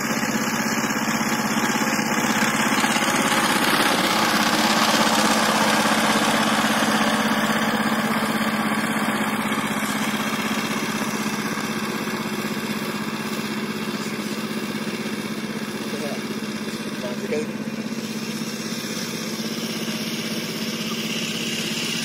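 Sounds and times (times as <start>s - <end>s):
diesel tiller engine running: 0.0s - 22.0s.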